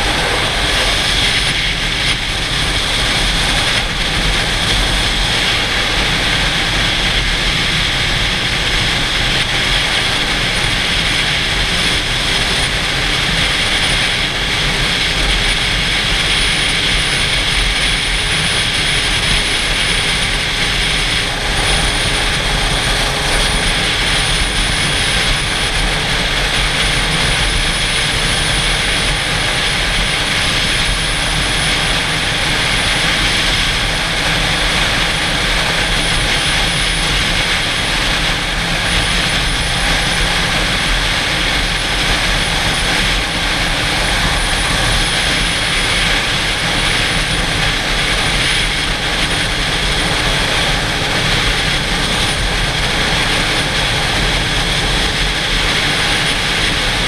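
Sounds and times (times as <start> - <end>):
wind rushing over helmet: 0.0 - 5.0.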